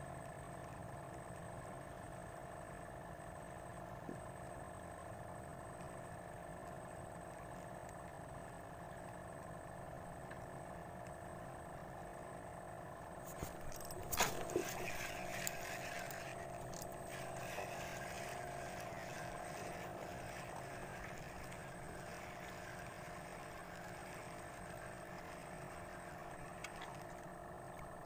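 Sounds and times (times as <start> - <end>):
steady low hum: 0.0 - 28.0
fishing reel clicks: 13.4 - 24.2.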